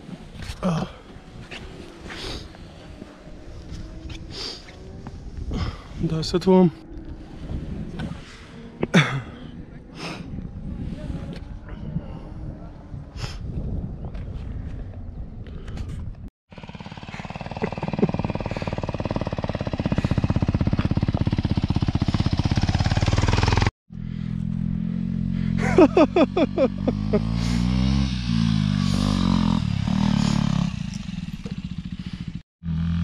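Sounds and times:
low motorcycle engine revving: 16.5 - 33.0
motorcycle engine pulsing: 16.5 - 33.0.

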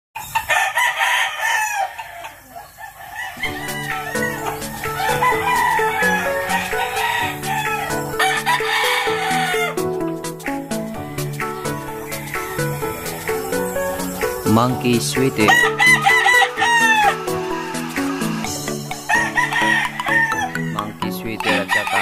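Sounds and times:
rooster crowing: 0.2 - 9.9, 15.4 - 20.7, 21.4 - 22.0
music with plucked bass line: 3.6 - 22.0.

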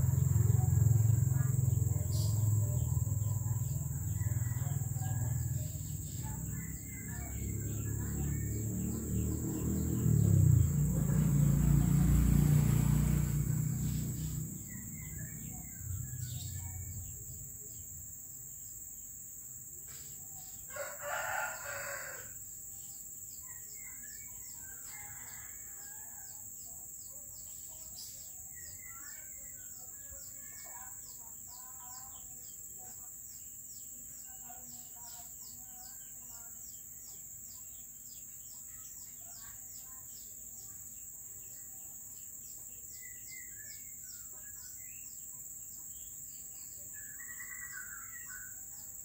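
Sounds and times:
small birds chirping: 0.0 - 49.0
rooster crowing: 3.7 - 5.8, 20.7 - 22.4, 24.6 - 26.4.

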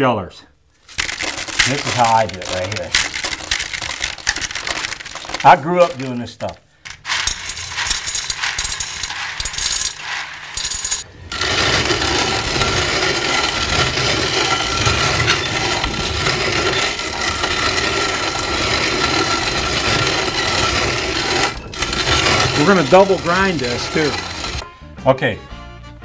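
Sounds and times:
hand-cranked grain mill grinding: 0.8 - 24.6.

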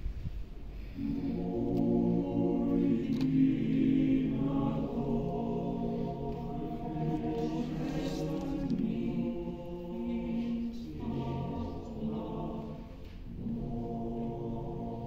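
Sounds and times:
choir singing held chords: 1.0 - 15.0.

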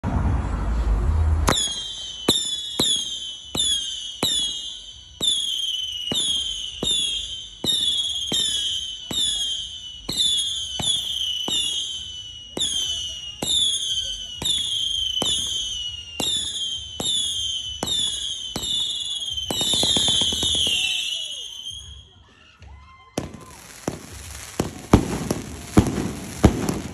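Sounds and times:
firework shots cracking: 1.4 - 21.9, 23.2 - 26.9
high falling whistle: 1.5 - 7.9.

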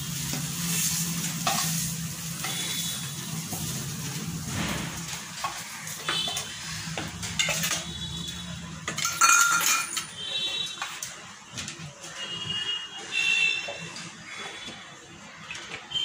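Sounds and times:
hot oil sizzling: 0.0 - 11.2
metal spoon clinking on pan: 8.9 - 10.2.

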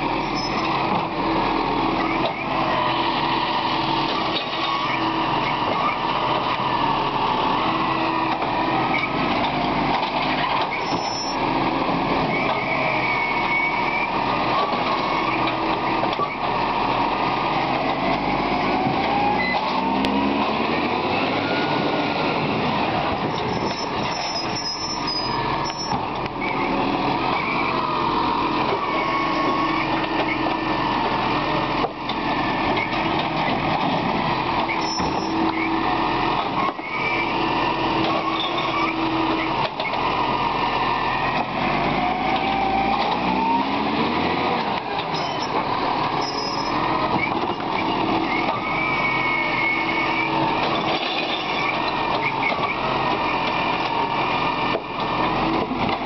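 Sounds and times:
diesel truck engine running: 0.0 - 56.0
hydraulic arm lifting bins: 0.0 - 56.0
metal squeaks: 0.2 - 0.7, 10.7 - 11.4, 23.3 - 26.0, 34.7 - 35.4, 38.2 - 39.0, 45.1 - 45.6, 46.2 - 51.8.

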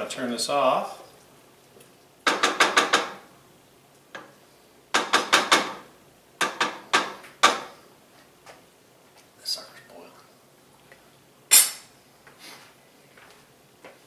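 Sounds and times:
wooden spoon knocking on saucepan: 2.2 - 3.2, 4.9 - 5.8, 6.4 - 7.7.

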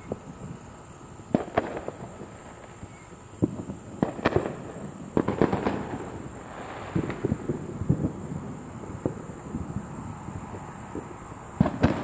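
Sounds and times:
firecrackers popping and banging: 0.0 - 0.6, 1.3 - 12.0
steady high hiss: 0.0 - 12.0.

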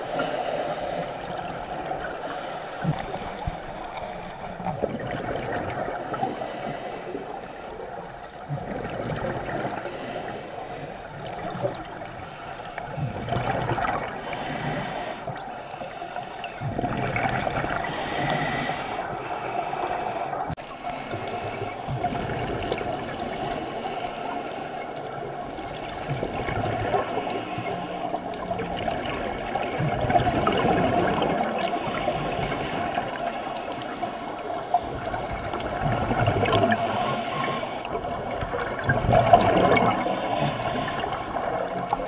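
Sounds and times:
exhaled air bubbling: 0.0 - 6.4, 7.8 - 10.2, 11.0 - 42.0
regulator inhalation hiss: 6.1 - 7.8, 14.2 - 16.5, 17.8 - 21.8.

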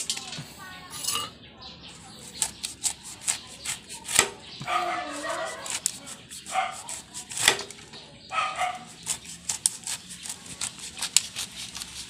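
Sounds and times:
knife slicing rind: 1.9 - 7.8, 8.5 - 12.0.

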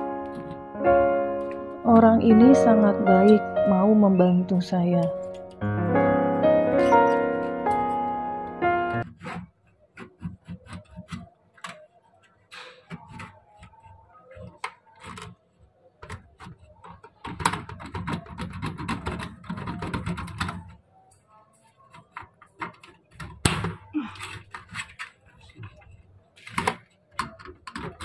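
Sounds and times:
window frame rattling and scraping: 0.2 - 0.7, 9.0 - 11.3.

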